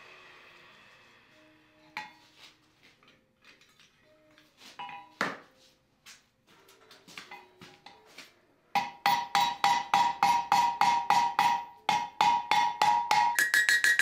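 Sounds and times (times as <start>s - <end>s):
anvil ringing: 8.8s - 14.0s
hammer striking anvil: 8.8s - 14.0s.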